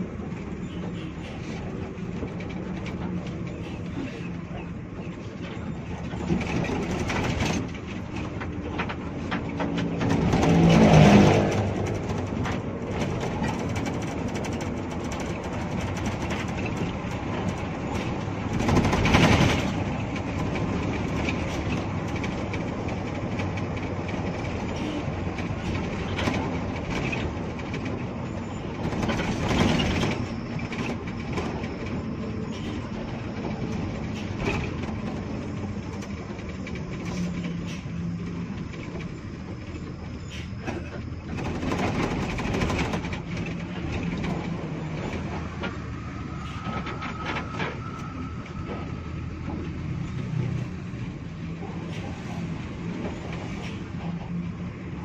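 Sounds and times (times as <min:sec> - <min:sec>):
bus engine running: 0:00.0 - 0:55.0
body rattles and clicks: 0:00.2 - 0:32.1, 0:40.6 - 0:45.8.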